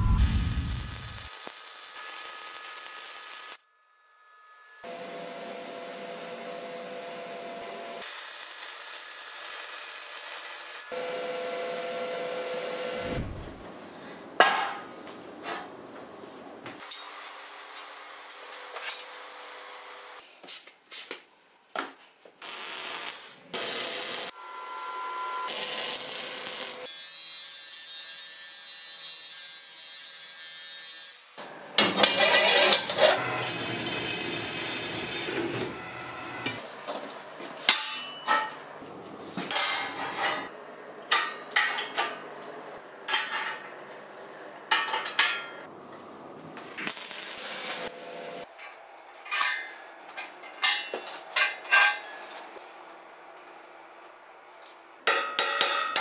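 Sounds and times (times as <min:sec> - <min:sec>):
band saw cutting steel: 0:31.8 - 0:36.6.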